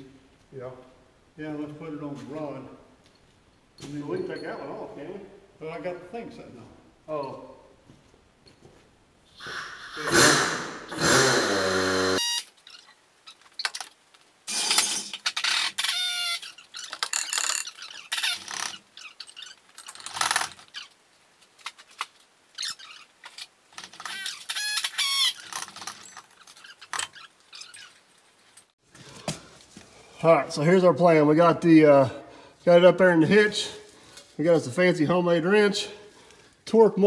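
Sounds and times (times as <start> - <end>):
metal tools clanking and squeaking: 3.8 - 4.9, 14.5 - 20.9, 22.6 - 28.7.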